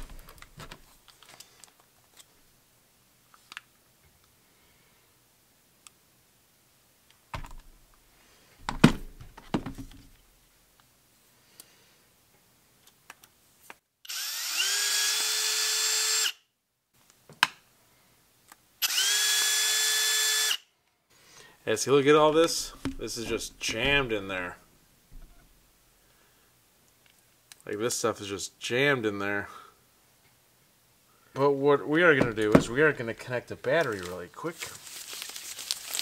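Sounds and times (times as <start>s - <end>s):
cordless screwdriver whining: 14.1s - 16.4s, 18.8s - 20.6s
parts clicking and clattering: 32.2s - 32.8s.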